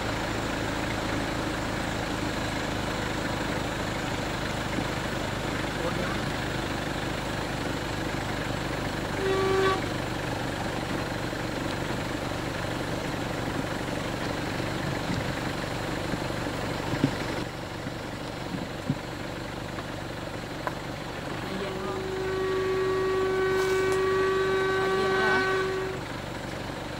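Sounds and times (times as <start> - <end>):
vehicle engine running: 0.0 - 26.9
vehicle horn toot: 5.6 - 13.4, 21.2 - 26.2.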